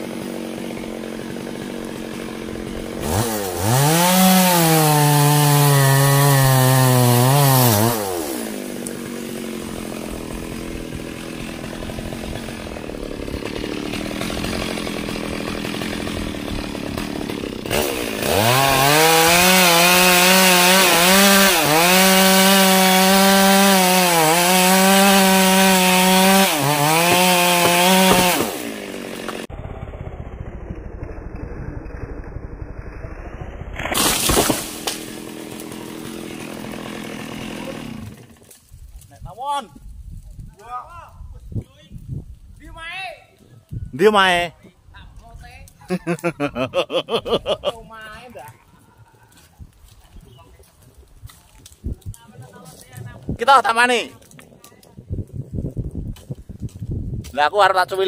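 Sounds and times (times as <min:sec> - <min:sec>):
chainsaw idling and revving: 0:00.0 - 0:31.5, 0:33.8 - 0:38.6.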